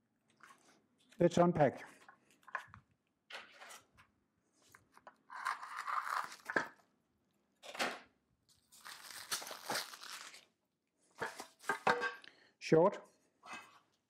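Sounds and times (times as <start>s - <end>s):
scissors cutting plastic: 5.3s - 6.7s
plastic wrap tearing and crinkling: 5.3s - 6.8s, 8.5s - 10.6s.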